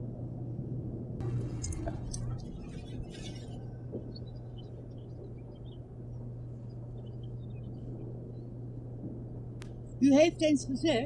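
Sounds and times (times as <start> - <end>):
low rumble: 0.0 - 11.0
steady low hum: 0.0 - 11.0
faint bird chirps: 1.2 - 8.8.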